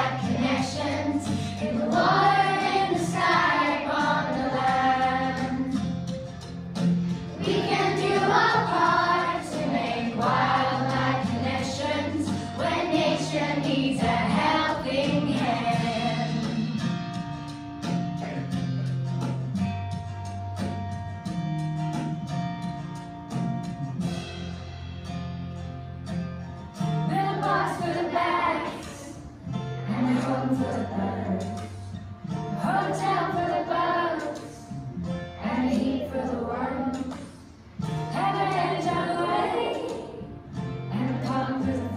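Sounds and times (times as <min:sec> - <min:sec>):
children singing: 0:00.0 - 0:06.0, 0:07.3 - 0:16.7, 0:27.1 - 0:31.8, 0:32.6 - 0:34.7, 0:35.4 - 0:37.4, 0:38.1 - 0:40.3, 0:40.9 - 0:41.9.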